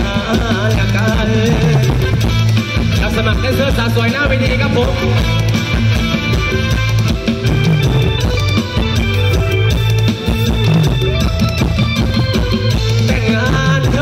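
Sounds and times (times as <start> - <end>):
drum kit driving beat: 0.0 - 14.0
electric guitar: 0.0 - 14.0
heavy bass: 0.0 - 14.0
higher melody line: 0.9 - 14.0.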